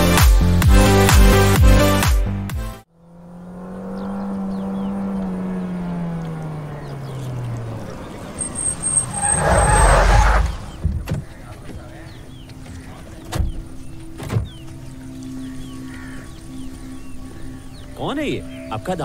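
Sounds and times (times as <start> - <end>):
motorcycle engine running: 2.9 - 8.9.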